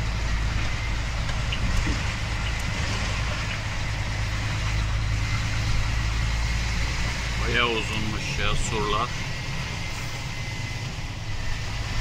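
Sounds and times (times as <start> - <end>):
road and cab noise: 0.0 - 12.0
truck diesel engine droning: 0.0 - 12.0.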